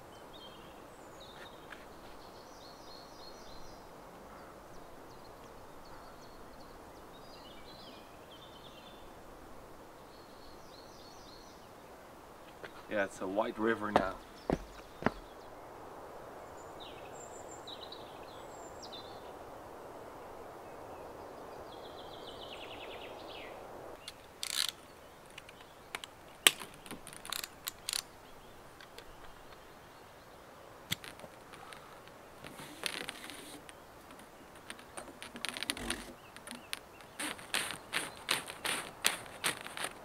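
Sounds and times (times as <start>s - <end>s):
sharp clicks and knocks: 32.4s - 40.0s.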